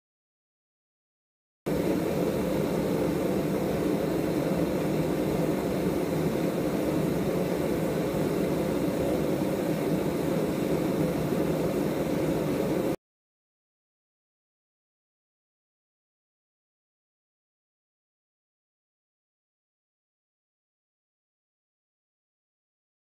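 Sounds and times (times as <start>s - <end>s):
gas forge burners rushing: 1.7s - 13.0s.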